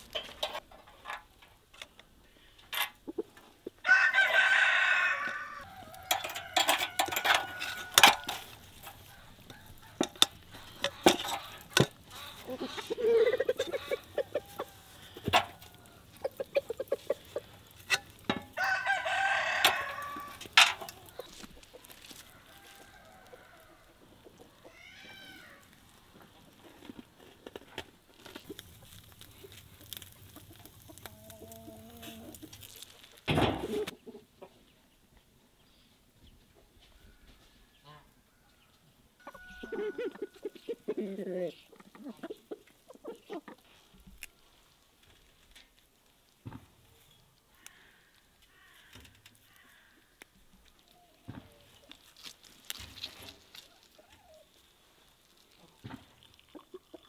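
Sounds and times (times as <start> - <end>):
chickens clucking: 2.8 - 4.5, 5.3 - 27.7, 28.3 - 35.3, 36.2 - 44.0, 53.1 - 57.0
rooster crowing: 3.8 - 8.4, 18.6 - 20.5, 22.2 - 24.0, 39.2 - 40.6.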